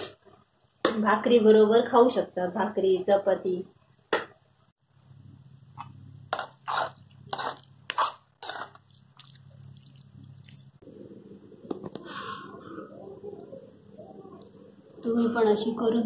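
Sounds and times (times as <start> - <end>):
metal spoon scraping a pan: 5.8 - 9.0
low hum: 9.6 - 15.1.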